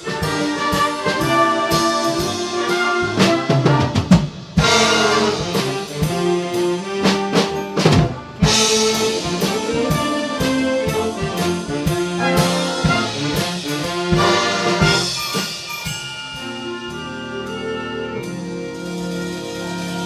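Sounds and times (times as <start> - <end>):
concert band playing: 0.0 - 20.0
drums: 0.0 - 20.0.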